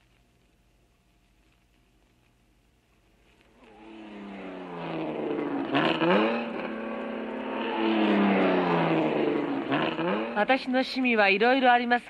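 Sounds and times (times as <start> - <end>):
car engine accelerating hard: 3.6 - 10.6.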